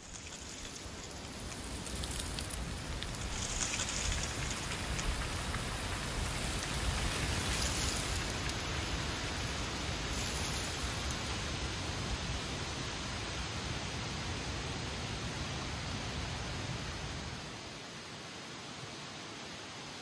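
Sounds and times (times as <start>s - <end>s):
dry leaves rustling: 0.0s - 11.8s
wind blowing through trees: 0.0s - 20.0s.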